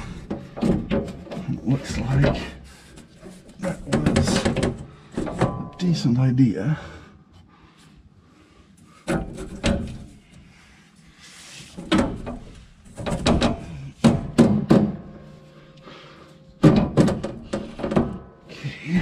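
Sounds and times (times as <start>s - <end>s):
clunks on sheet-metal housing: 0.2s - 2.6s, 3.2s - 5.8s, 9.0s - 10.2s, 11.8s - 15.3s, 16.6s - 18.4s.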